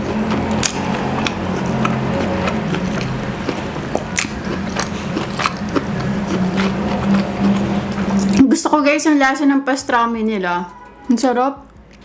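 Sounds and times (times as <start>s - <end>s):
close chewing with mouth smacks: 0.0s - 8.5s.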